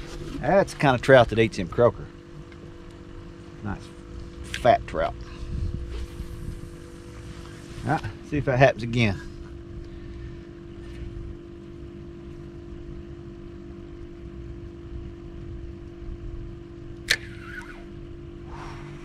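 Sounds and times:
boat motor humming: 0:00.0 - 0:19.0
low rumble: 0:03.6 - 0:11.5
sharp click: 0:17.0 - 0:17.9.

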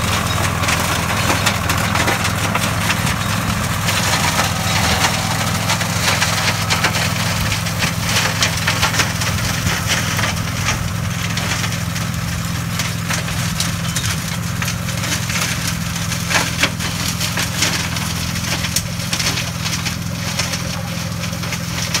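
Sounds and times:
shredder cracking wood: 0:00.0 - 0:22.0
tractor engine running: 0:00.0 - 0:22.0.

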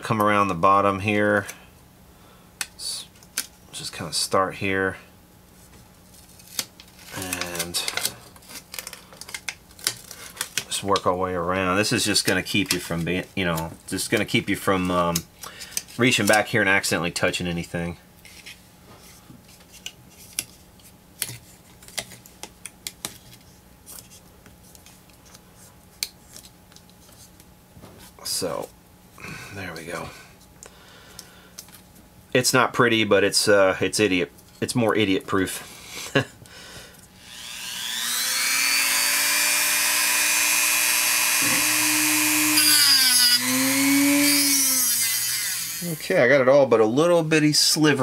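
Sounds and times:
foil tape crinkling: 0:06.2 - 0:10.8
handheld power tool running: 0:37.2 - 0:46.0.

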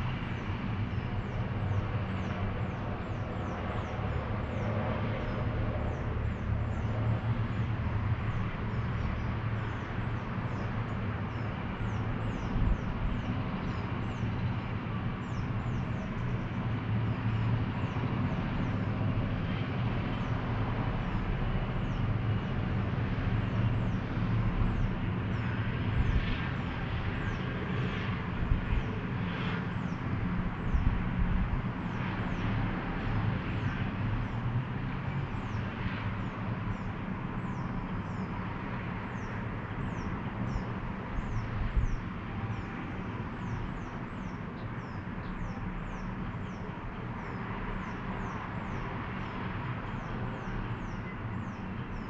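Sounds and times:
hum of traffic and machinery: 0:00.0 - 0:52.0
small birds chirping: 0:08.2 - 0:21.2, 0:35.3 - 0:52.0.

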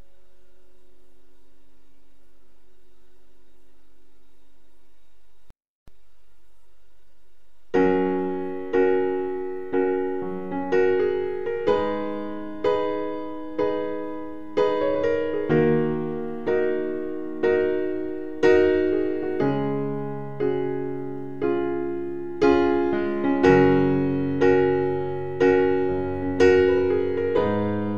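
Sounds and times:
faint hum: 0:00.0 - 0:27.9
slow piano chords: 0:07.7 - 0:27.9.

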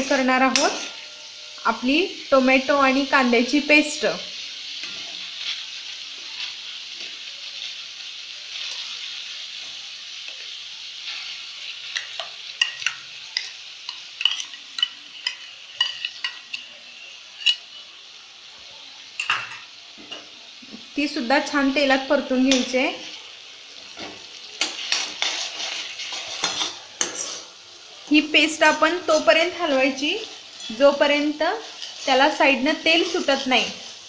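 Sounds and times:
oil sizzling in a pan: 0:00.0 - 0:34.0
metal spoon clicking and scraping: 0:00.5 - 0:01.1, 0:12.0 - 0:16.7, 0:17.4 - 0:17.6, 0:24.6 - 0:27.5.

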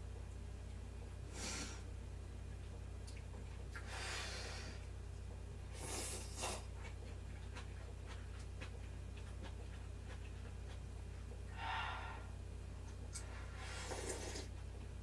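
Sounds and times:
chewing: 0:06.0 - 0:11.4.

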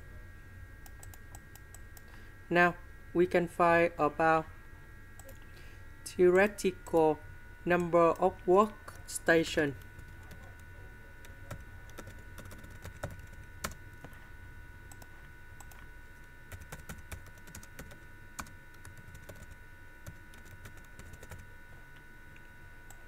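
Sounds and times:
faint steady hum: 0:00.0 - 0:23.0
keyboard typing clicks: 0:00.8 - 0:01.8, 0:05.2 - 0:05.4, 0:16.5 - 0:21.4.

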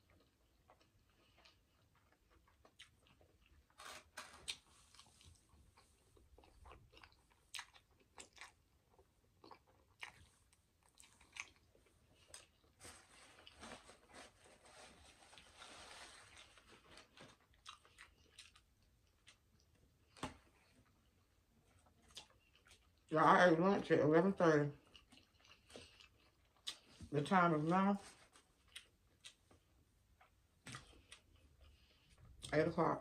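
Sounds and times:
wet chewing and lip smacks: 0:00.0 - 0:03.7, 0:04.5 - 0:12.8, 0:17.5 - 0:21.0, 0:21.8 - 0:23.1, 0:24.8 - 0:27.0, 0:28.6 - 0:32.5.

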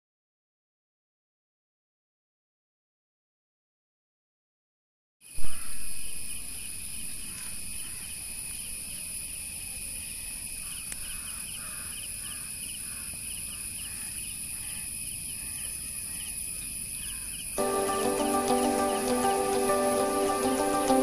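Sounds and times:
insects shrilling and chirping: 0:05.3 - 0:21.0.

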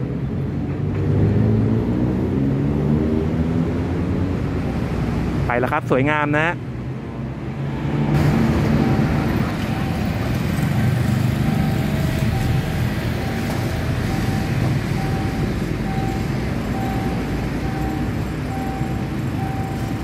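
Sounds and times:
traffic rumble: 0:00.0 - 0:20.0
crossing warning signal tone: 0:08.2 - 0:20.0.

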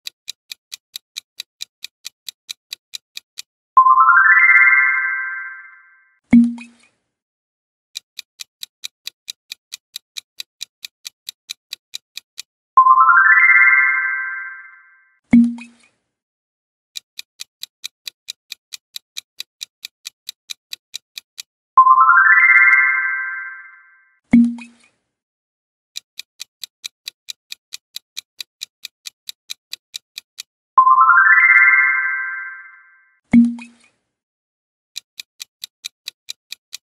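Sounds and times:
clock-like timer ticking: 0:00.0 - 0:06.8, 0:08.0 - 0:15.9, 0:17.0 - 0:24.8, 0:26.0 - 0:33.9, 0:35.0 - 0:36.9
bright rising chime: 0:03.8 - 0:06.0, 0:12.8 - 0:15.0, 0:21.8 - 0:24.0, 0:30.8 - 0:33.0.

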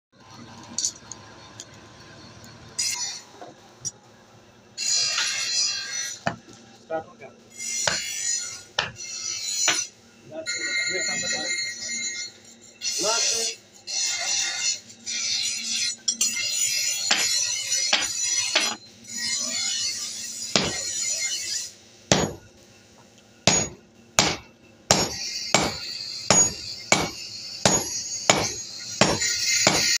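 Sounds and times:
hammer ringing on anvil: 0:07.8 - 0:08.1, 0:08.8 - 0:09.0, 0:17.1 - 0:18.8, 0:20.6 - 0:21.0, 0:22.1 - 0:22.5, 0:23.5 - 0:30.0.

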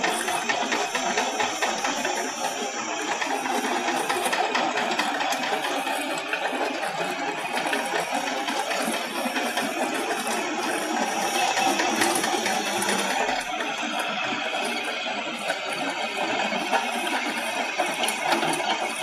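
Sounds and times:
trencher mechanical rattle: 0:00.0 - 0:15.1
tractor engine under load: 0:00.0 - 0:19.0.

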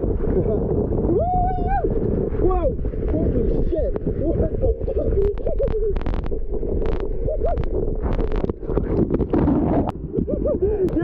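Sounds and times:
water rushing and gurgling: 0:00.0 - 0:11.0
water splashing: 0:00.0 - 0:11.0
splashdown into water: 0:05.4 - 0:10.0.

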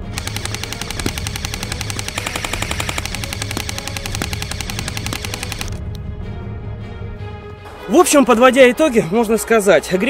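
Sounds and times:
airsoft gun firing full auto: 0:00.0 - 0:05.8.

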